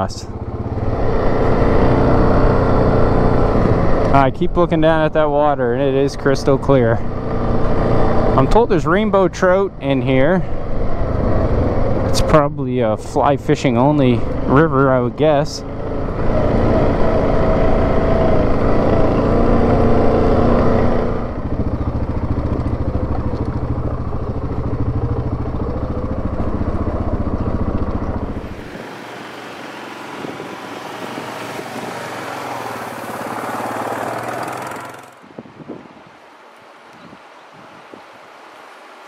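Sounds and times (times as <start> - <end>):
atv engine running: 0.0 - 35.3
steady rushing noise: 20.4 - 36.8.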